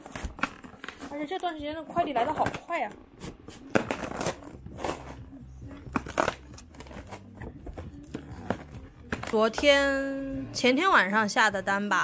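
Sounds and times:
tape and cardboard ripping: 3.2s - 5.2s, 5.8s - 7.4s.

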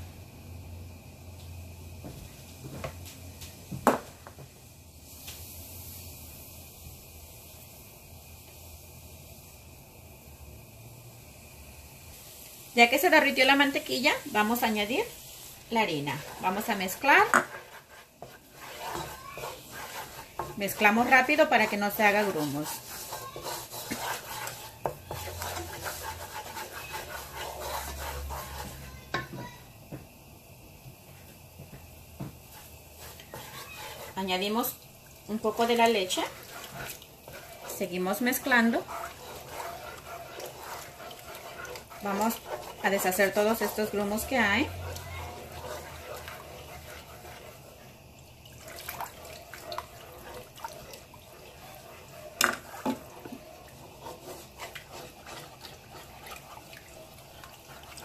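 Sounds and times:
wooden spoon scraping pan: 13.3s - 29.5s, 32.4s - 48.0s, 48.6s - 58.0s
spoon knocking on pan: 17.1s - 17.6s, 28.6s - 30.0s, 52.4s - 53.4s.

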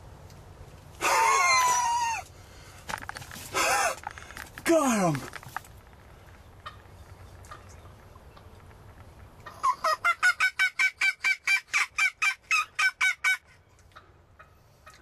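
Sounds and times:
wild turkey yelping: 9.4s - 15.0s.

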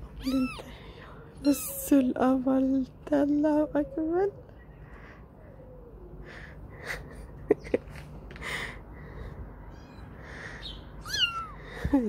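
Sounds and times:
kitten mewing: 0.2s - 0.7s, 11.0s - 11.7s.

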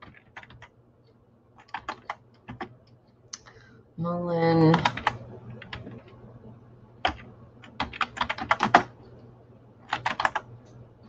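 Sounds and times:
typing on computer keyboard: 0.0s - 0.7s, 1.6s - 2.8s, 4.7s - 6.2s, 7.0s - 8.9s, 9.8s - 10.5s.

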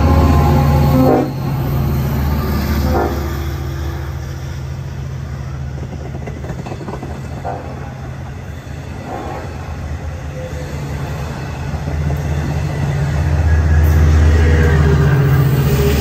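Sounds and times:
diesel passenger train rolling past: 0.0s - 16.0s.

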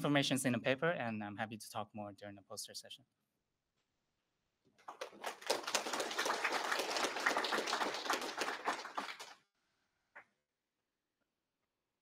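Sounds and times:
audience applauding: 4.8s - 9.4s.

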